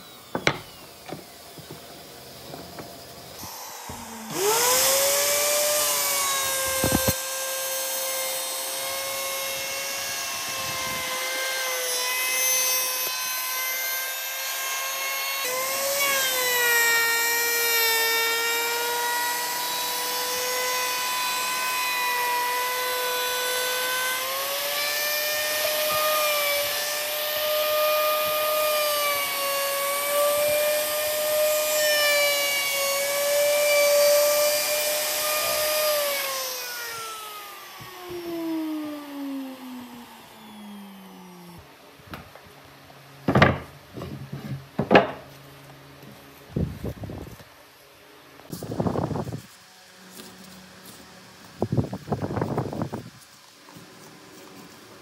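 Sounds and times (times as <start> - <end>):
power tool whining: 0.0 - 41.8
rasping cutting into wood: 2.7 - 7.9.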